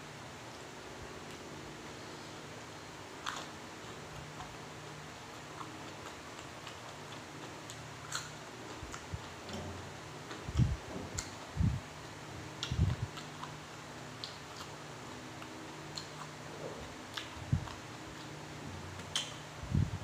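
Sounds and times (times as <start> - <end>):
fingers and food clicks: 3.2 - 4.6, 5.3 - 9.6, 12.6 - 19.6.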